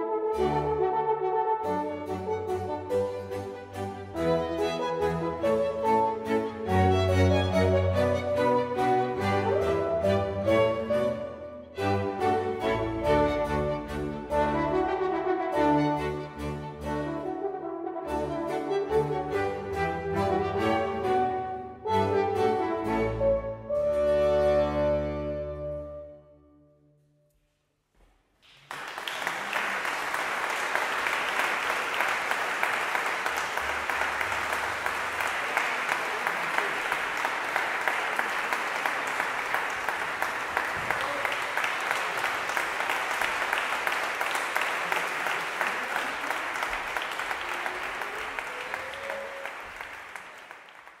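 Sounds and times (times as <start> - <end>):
audience applause: 28.4 - 51.0.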